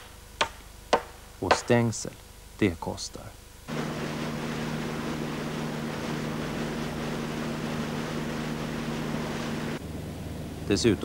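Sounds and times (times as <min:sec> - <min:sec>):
wake and spray rushing: 0:03.7 - 0:09.8
motorboat engine humming: 0:03.7 - 0:11.0.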